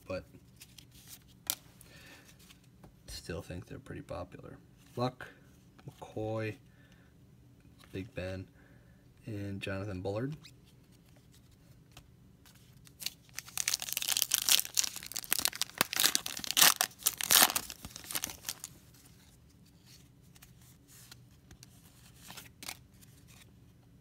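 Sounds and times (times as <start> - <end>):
faint handling of cards: 0.1 - 3.0, 10.1 - 24.0
foil wrapper tearing and crumpling: 12.9 - 18.7.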